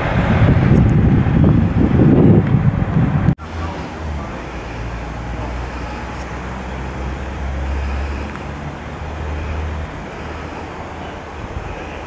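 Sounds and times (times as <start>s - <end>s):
low outdoor rumble: 0.0s - 12.0s
faint hiss: 3.4s - 12.0s.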